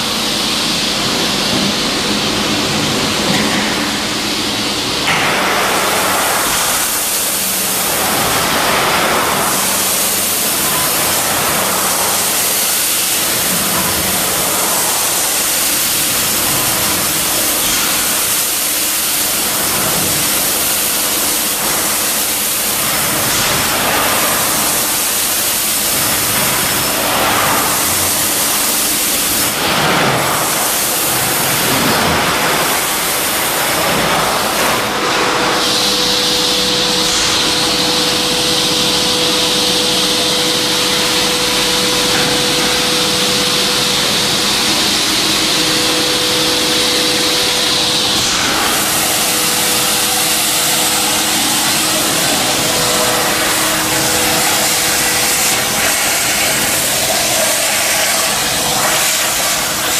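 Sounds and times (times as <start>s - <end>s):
industrial vacuum cleaner running: 0.0s - 59.9s
air rushing through suction hose: 42.4s - 59.9s.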